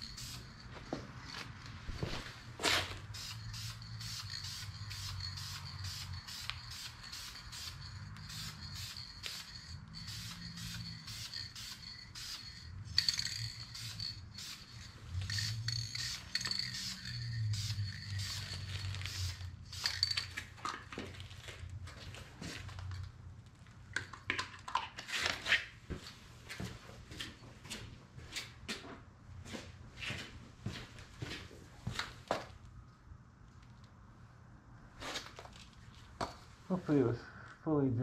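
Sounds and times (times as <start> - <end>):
aerosol spray can hissing: 3.1 - 12.6, 13.6 - 20.1.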